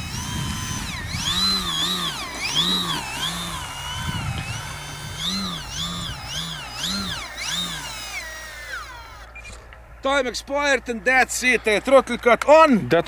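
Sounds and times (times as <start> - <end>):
electric model plane motor whining: 0.0 - 9.3.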